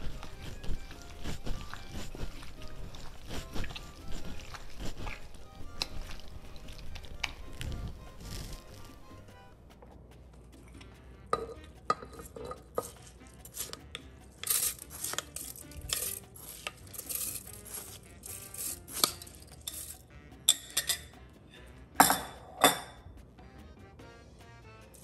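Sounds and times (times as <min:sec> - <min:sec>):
utensils clattering against pots: 0:11.4 - 0:21.2, 0:22.0 - 0:23.0.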